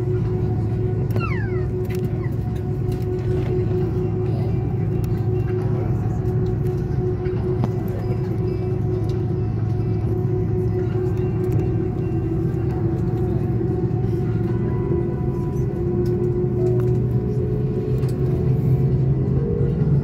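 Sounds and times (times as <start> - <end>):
jet engines idling: 0.0 - 20.0.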